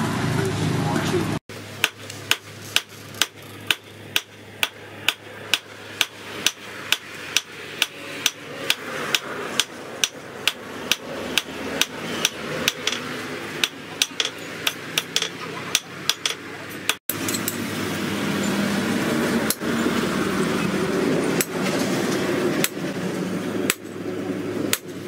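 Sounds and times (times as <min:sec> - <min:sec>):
hammer striking metal on anvil: 0:01.8 - 0:17.6.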